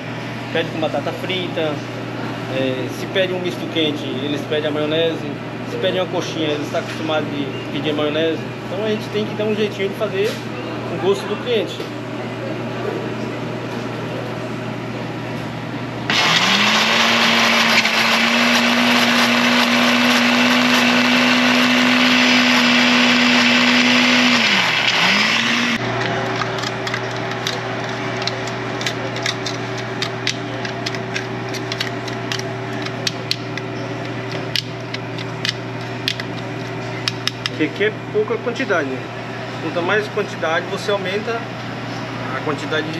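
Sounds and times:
blender motor running: 16.1s - 30.3s.

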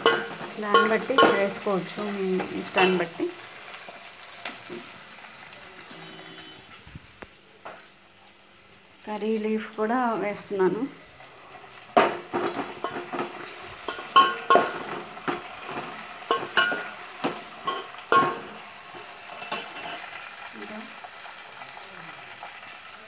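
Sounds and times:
spoon clinking against pot: 0.0s - 1.6s, 12.5s - 15.4s, 16.3s - 18.6s, 19.3s - 20.0s
frying sizzle: 0.0s - 23.0s.

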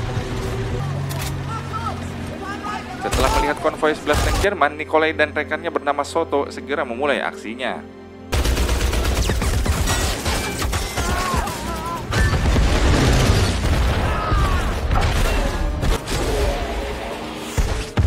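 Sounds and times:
film score music: 0.0s - 18.0s
explosions: 12.1s - 16.8s.

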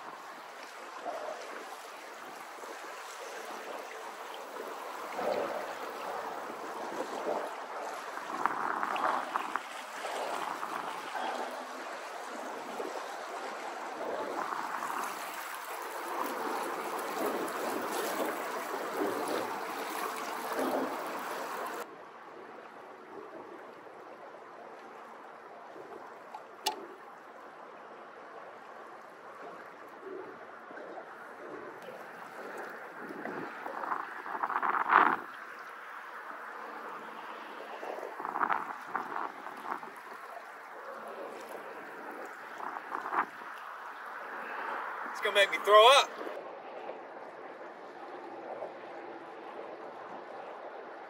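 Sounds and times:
water splashing against boat hull: 0.0s - 21.8s, 29.3s - 46.4s
water lapping: 0.0s - 51.0s.

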